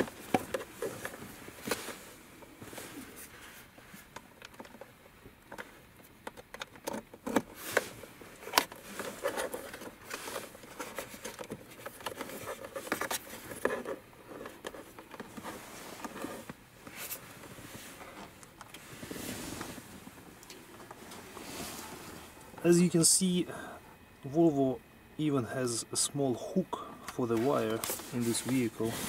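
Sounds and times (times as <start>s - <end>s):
cable and plastic clicks and scrapes: 4.0s - 18.8s, 27.1s - 29.0s.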